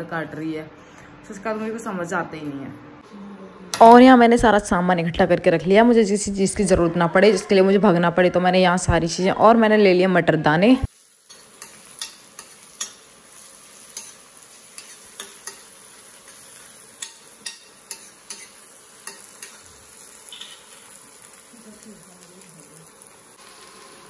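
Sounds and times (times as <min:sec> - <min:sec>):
onions sizzling in a pan: 0:10.5 - 0:24.0
spoon clinking against pan: 0:11.3 - 0:13.1, 0:13.9 - 0:15.7, 0:17.0 - 0:19.6, 0:20.3 - 0:20.8.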